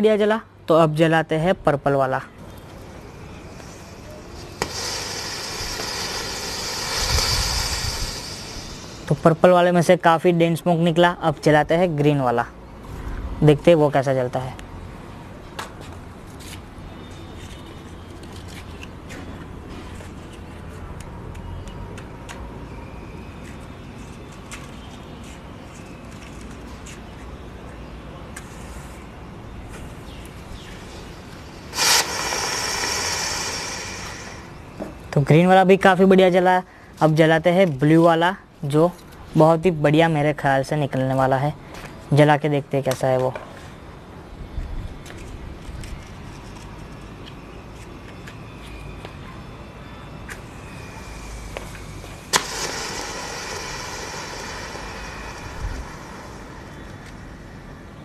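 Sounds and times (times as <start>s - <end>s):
smoke firework hissing: 3.4s - 9.7s, 31.4s - 34.7s, 50.4s - 57.9s
firework whoosh: 4.6s - 9.2s, 31.7s - 34.5s, 52.3s - 57.5s.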